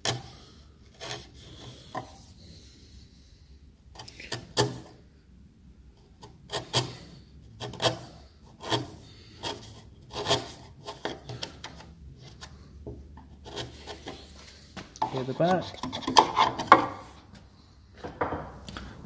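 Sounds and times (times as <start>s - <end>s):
wood chisel scraping: 0.0s - 2.3s, 4.0s - 5.0s, 6.0s - 17.4s.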